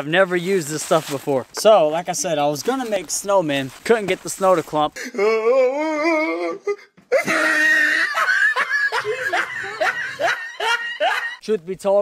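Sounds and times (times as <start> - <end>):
rhythmic ha-ha laughing: 7.1 - 11.4.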